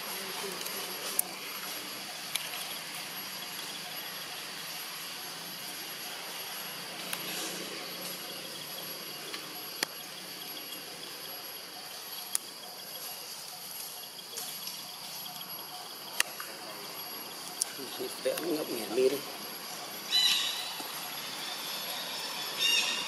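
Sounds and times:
insect chorus buzzing: 0.0 - 23.0
sharp isolated clicks: 9.3 - 10.0.

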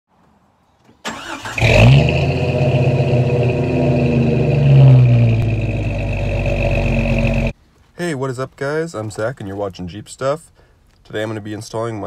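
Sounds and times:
car engine cranking and starting: 1.0 - 7.5
car engine running: 1.6 - 7.5.

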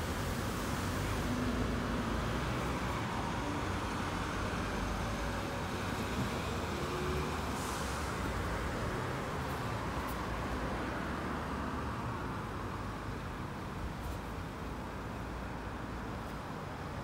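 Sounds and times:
bus pulling away: 0.0 - 10.0
cars driving past: 0.0 - 12.9.

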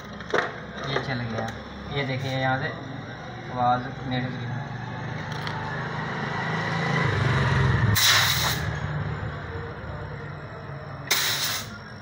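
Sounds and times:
compressed air hissing from pipe: 8.0 - 8.7, 11.1 - 11.8.

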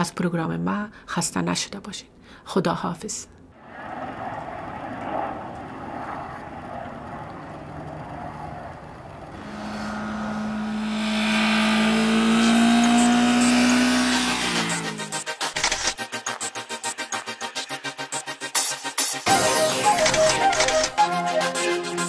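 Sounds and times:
car engine approaching: 3.6 - 15.2
road noise hiss: 7.4 - 15.0.

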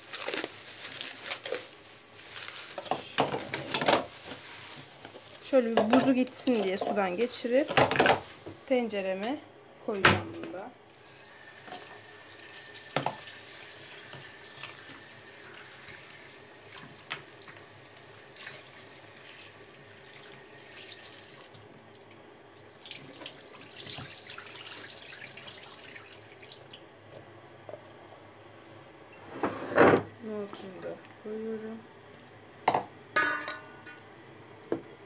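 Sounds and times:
tap running into sink: 12.9 - 13.4.

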